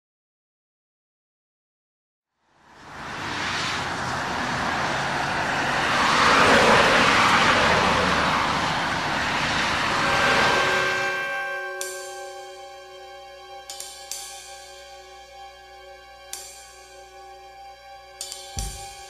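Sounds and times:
passing cars rushing: 2.5s - 13.6s
sustained musical notes: 4.2s - 19.0s.

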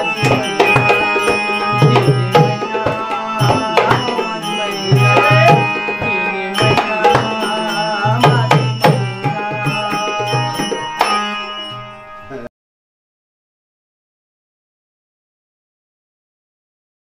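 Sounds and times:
drum beating quick rhythm: 0.0s - 11.2s
electronic keyboard melody: 0.0s - 12.5s.

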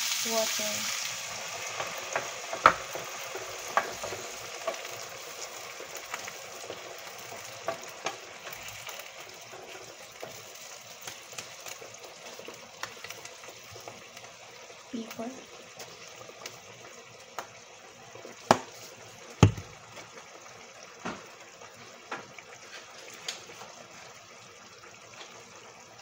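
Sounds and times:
meat sizzling in a frying pan: 0.0s - 26.0s
utensil knocking against pan: 19.4s - 19.7s.

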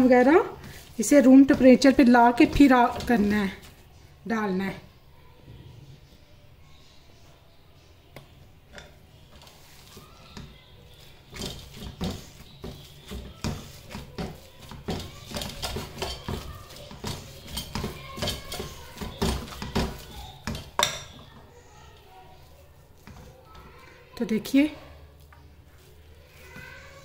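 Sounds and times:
potato masher knocking in metal pan: 11.3s - 21.3s.

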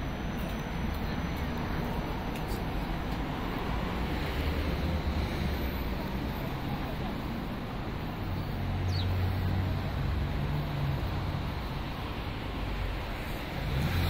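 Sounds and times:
road traffic noise: 0.0s - 14.0s.

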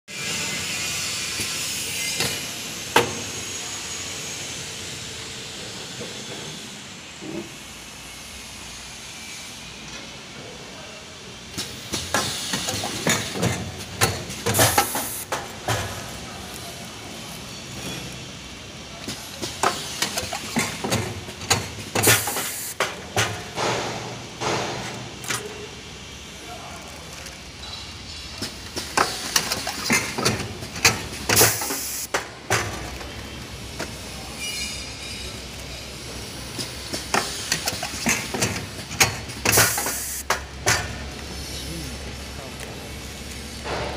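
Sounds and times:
packing machine hissing: 0.1s - 9.7s, 11.5s - 43.8s
compressed air hisses: 14.5s - 15.4s, 22.0s - 22.8s, 31.4s - 32.2s, 39.5s - 40.2s.

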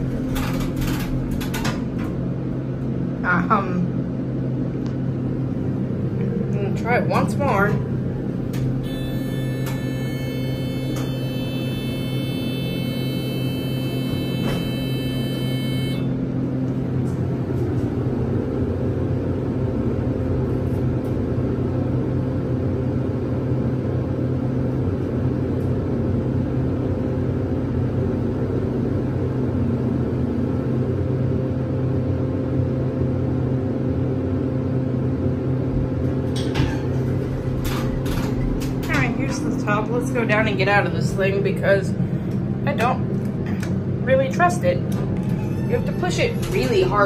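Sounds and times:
elevator machinery hum: 0.0s - 47.0s
ventilation fan: 0.0s - 47.0s
high electronic tone: 8.8s - 16.2s.

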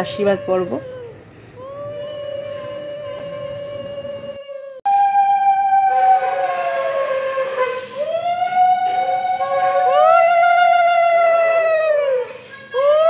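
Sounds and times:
lower conch note: 2.0s - 11.0s
conch shell blown: 2.4s - 10.9s.

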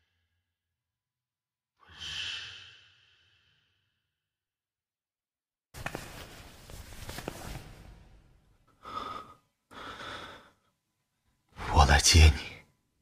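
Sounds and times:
soft breathing: 8.7s - 10.7s.

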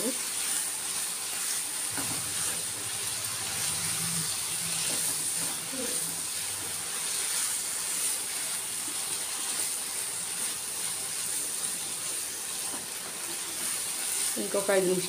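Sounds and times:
food sizzling in a pan: 0.0s - 15.0s
spatula stirring: 0.3s - 14.6s.

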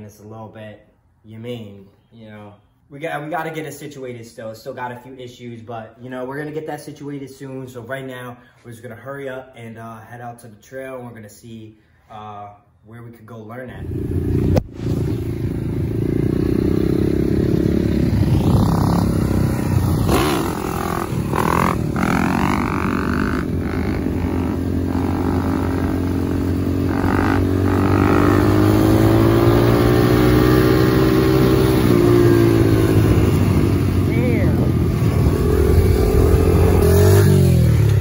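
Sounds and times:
dirt bike engine revving: 13.8s - 38.0s.

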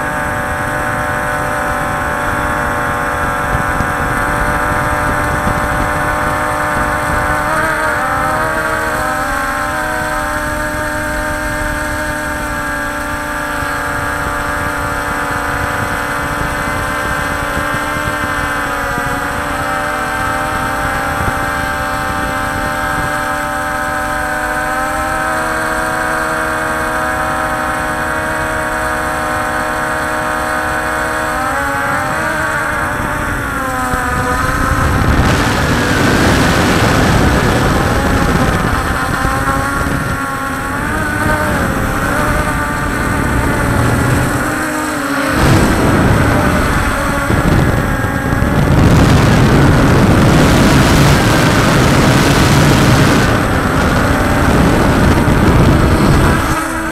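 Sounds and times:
drone propellers whining: 0.0s - 56.9s
rushing noise: 41.6s - 56.9s.

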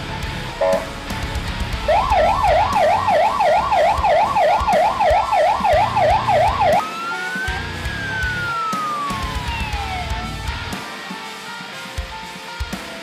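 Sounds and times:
electronic fire engine siren: 0.6s - 1.0s, 1.8s - 10.6s.

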